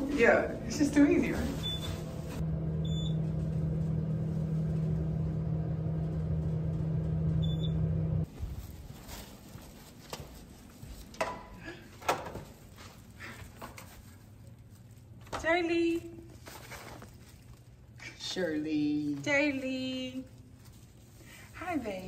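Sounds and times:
plastic bag rustling: 0.0s - 2.4s, 8.3s - 11.2s, 12.3s - 22.0s
elevator hum: 0.0s - 8.3s.

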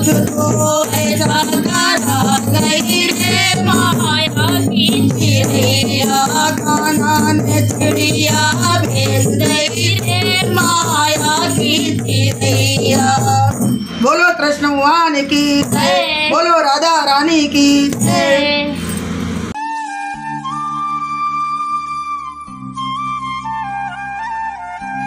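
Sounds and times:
women singing folk song: 0.0s - 13.6s, 14.8s - 18.9s
hand drum: 0.0s - 13.8s
rattling hand percussion: 0.0s - 19.6s.

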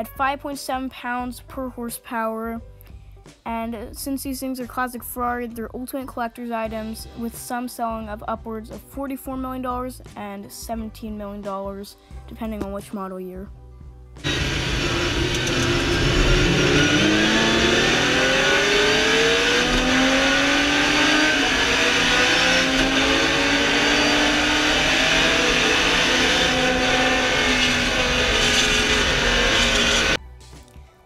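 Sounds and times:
race car engine revving: 14.2s - 30.2s.

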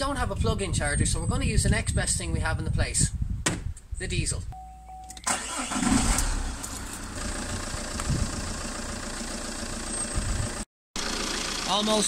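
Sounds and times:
diesel engine starting and idling: 5.2s - 12.0s.

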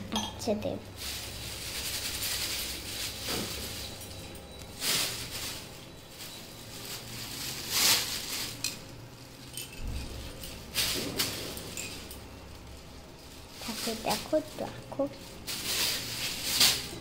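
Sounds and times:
plastic bag rustling: 0.5s - 17.0s.

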